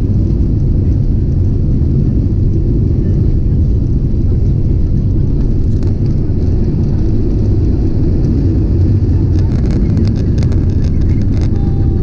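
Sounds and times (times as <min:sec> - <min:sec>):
jet engines and cabin noise: 0:00.0 - 0:12.0.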